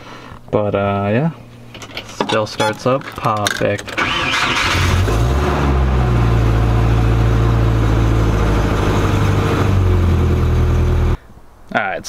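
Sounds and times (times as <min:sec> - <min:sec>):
car engine idling: 0:03.8 - 0:11.2.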